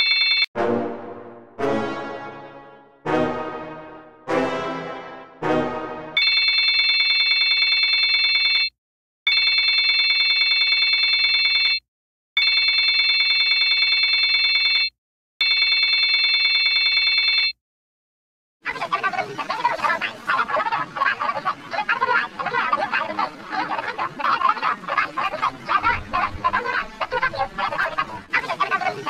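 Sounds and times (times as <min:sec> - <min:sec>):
telephone ringing: 0:00.0 - 0:00.5, 0:06.2 - 0:08.7, 0:09.3 - 0:11.8, 0:12.4 - 0:17.6.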